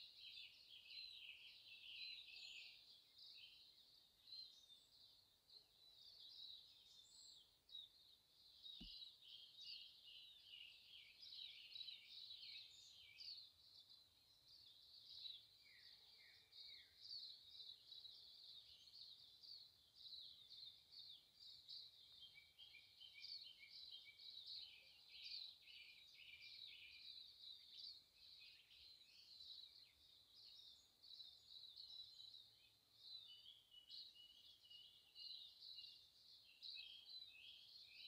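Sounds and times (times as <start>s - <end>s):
songbirds chirping and trilling: 0.0s - 38.0s.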